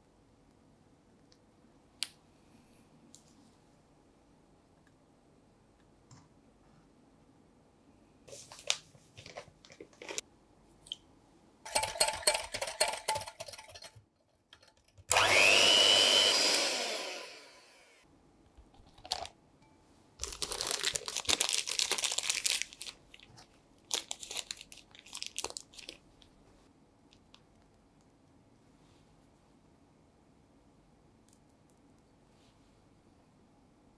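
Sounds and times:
plastic piping bag crinkling: 18.7 - 19.4, 20.2 - 26.4.

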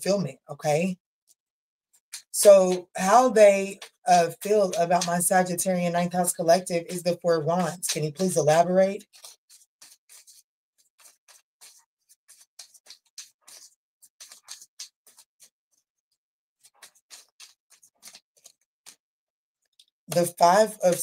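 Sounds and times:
cards being shuffled: 9.0 - 10.4, 11.0 - 15.5, 16.6 - 18.6.

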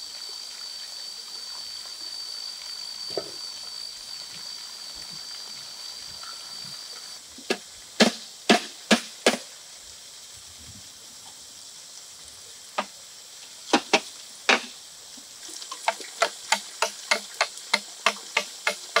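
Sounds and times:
faint high hiss: 0.0 - 19.0
knife chopping bamboo: 15.9 - 19.0.

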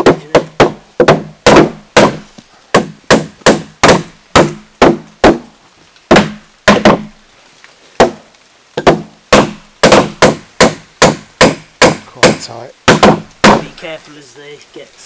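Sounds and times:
mallet knocking on wooden beams: 0.0 - 5.4, 6.1 - 7.1, 8.8 - 13.7.

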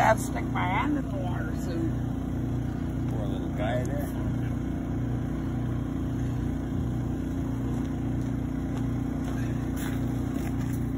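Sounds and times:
motor humming with slow throb: 0.0 - 10.9.

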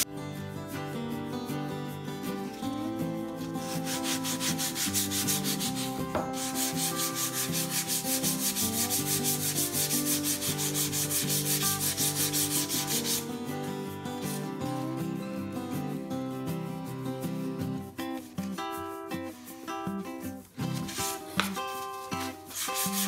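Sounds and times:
sandpaper rubbing on board: 2.5 - 14.6, 17.3 - 23.0.

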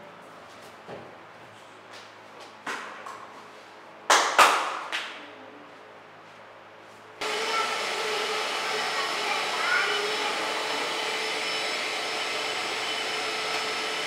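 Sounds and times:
vacuum cleaner motor running: 7.2 - 14.0.

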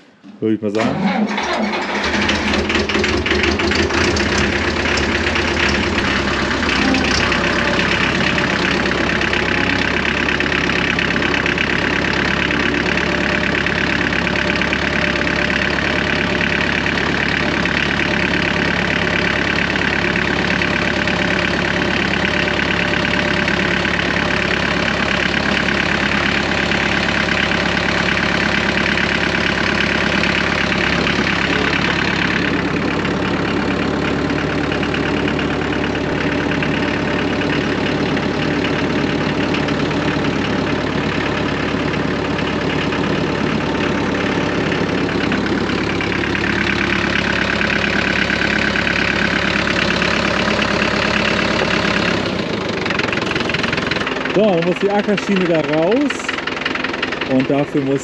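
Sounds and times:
diesel tractor engine idling: 0.0 - 58.0.

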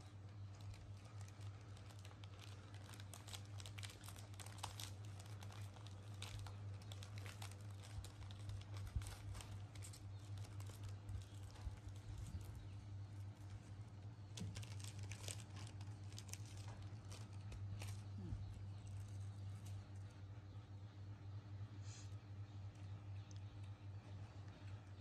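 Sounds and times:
steady low hum: 0.0 - 25.0
snack wrapper crinkling and tearing: 0.2 - 20.0.

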